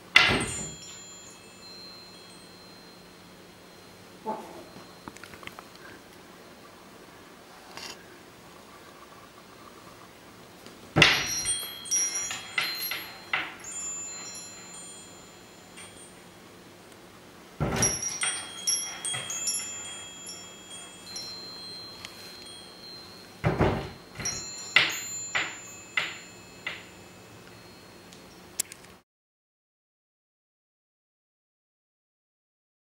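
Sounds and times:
wind bell jangling: 0.0s - 6.6s, 11.0s - 16.8s, 17.6s - 28.5s.

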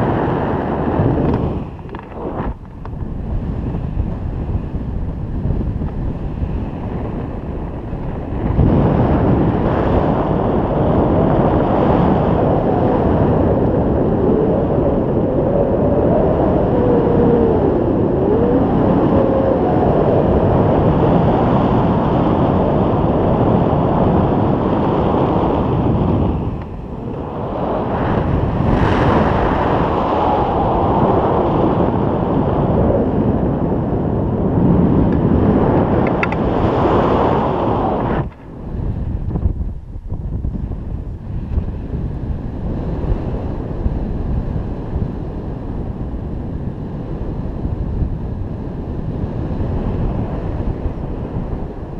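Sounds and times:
wind roar on microphone: 0.0s - 51.9s.

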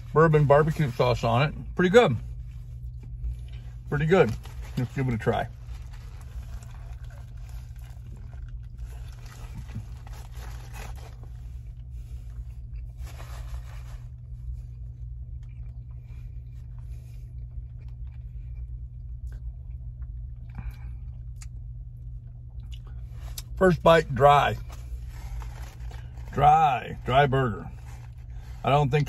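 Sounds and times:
steady low hum: 0.0s - 29.0s
chewing a burger: 2.2s - 23.8s, 24.6s - 26.8s, 27.5s - 29.0s
paper wrapper crinkling: 4.0s - 11.6s, 12.9s - 14.2s, 24.4s - 28.7s.

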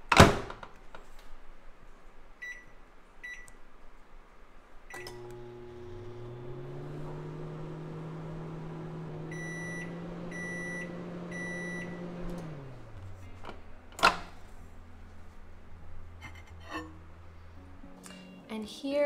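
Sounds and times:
microwave oven humming: 4.9s - 17.9s
short beeps: 9.3s - 12.0s.

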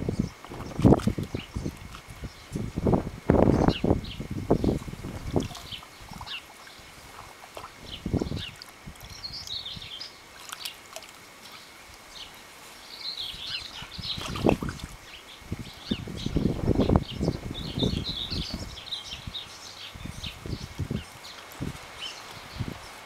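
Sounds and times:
dogs splashing water: 0.4s - 2.4s, 4.4s - 12.7s, 13.4s - 15.1s.

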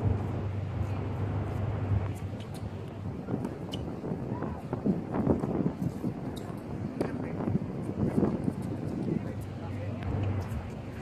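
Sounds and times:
low steady hum: 0.0s - 5.6s.

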